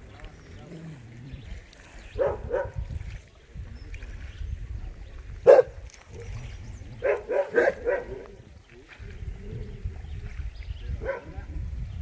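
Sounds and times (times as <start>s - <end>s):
dog barking: 2.2s - 2.8s, 5.4s - 5.7s, 7.0s - 8.2s, 11.0s - 11.4s.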